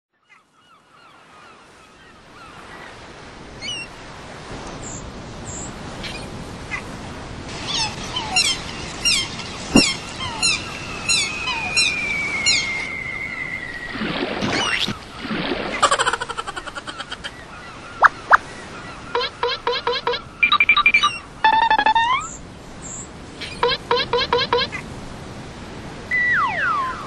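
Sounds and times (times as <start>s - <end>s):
waves washing: 1.2s - 27.0s
short falling bird calls: 7.6s - 14.0s
long falling whistle: 11.1s - 14.0s, 26.1s - 27.0s.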